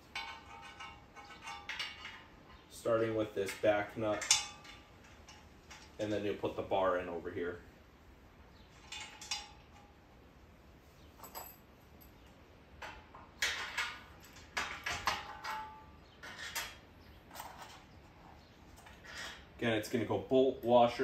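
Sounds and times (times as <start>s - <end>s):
short metallic rings: 0.0s - 2.8s, 3.4s - 6.2s
metal clinks and scrapes: 0.0s - 6.6s, 8.6s - 10.1s, 11.0s - 20.8s.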